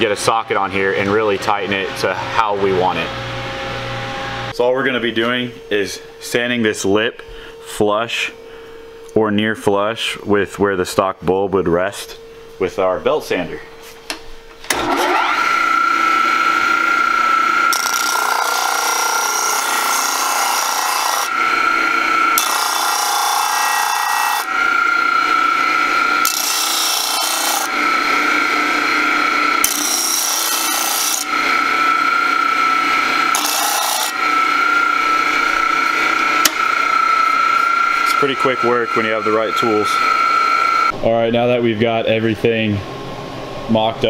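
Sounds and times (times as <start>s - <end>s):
disc sander motor whine: 0.0s - 7.6s, 14.6s - 41.0s
plastic grinding rasp on sander: 16.1s - 40.9s.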